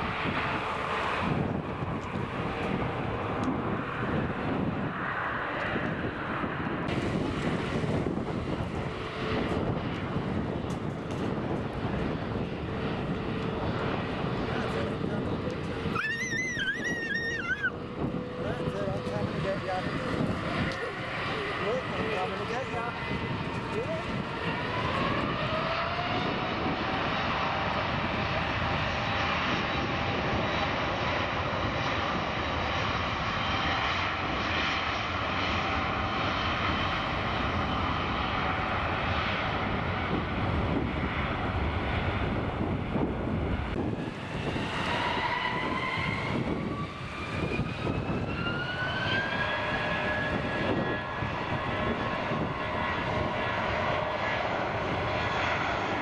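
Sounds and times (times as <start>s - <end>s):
jet engines running: 0.0s - 56.0s
engine whine spooling up: 9.6s - 31.6s, 37.0s - 56.0s.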